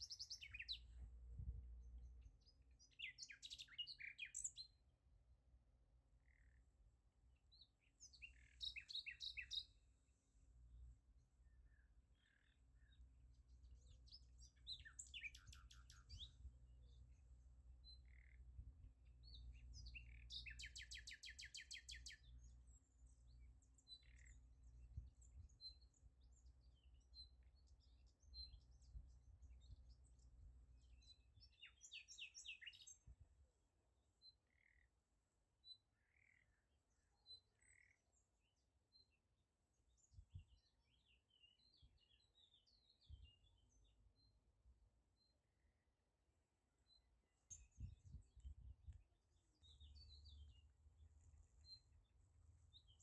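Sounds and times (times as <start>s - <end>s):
bird chirps and trills: 0.0s - 1.0s, 2.4s - 4.7s, 8.0s - 9.8s, 13.8s - 17.0s, 19.2s - 24.4s, 30.8s - 33.0s
faint low rumble: 0.0s - 3.3s.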